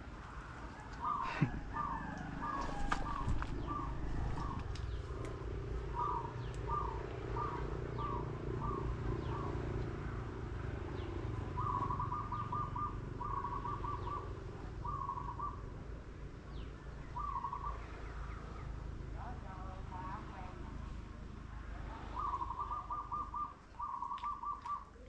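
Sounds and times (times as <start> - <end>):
steady low rumble: 0.0 - 24.0
bird calling: 0.6 - 9.8, 11.0 - 15.7, 16.6 - 20.4, 21.9 - 25.0.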